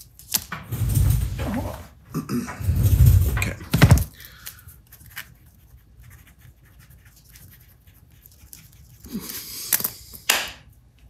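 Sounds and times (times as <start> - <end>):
pencil scratching on paper: 4.9 - 9.0.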